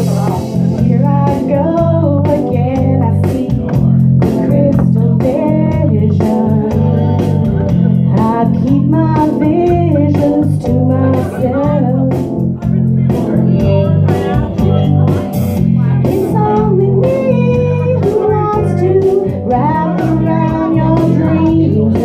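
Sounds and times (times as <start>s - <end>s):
amplified guitar and bass music: 0.0s - 22.0s
woman singing into microphone: 0.8s - 12.3s, 16.0s - 22.0s.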